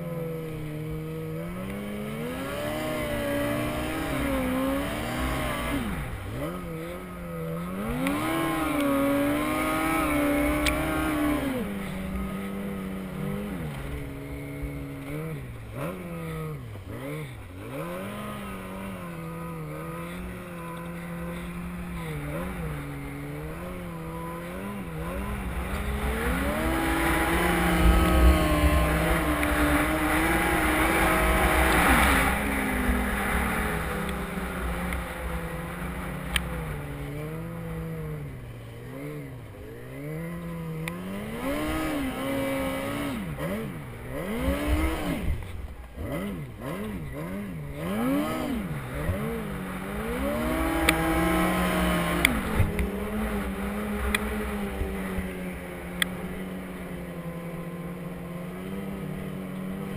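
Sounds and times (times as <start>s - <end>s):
snowmobile engine revving: 0.0s - 59.9s.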